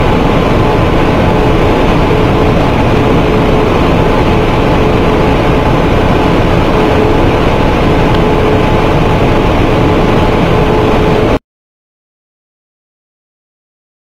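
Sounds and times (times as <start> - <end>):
faint hum: 0.0 - 11.4
printing press machine din: 0.0 - 11.4.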